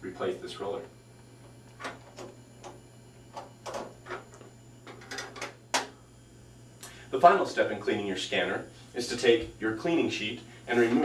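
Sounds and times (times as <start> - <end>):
scanner cover clunk: 1.7 - 5.9.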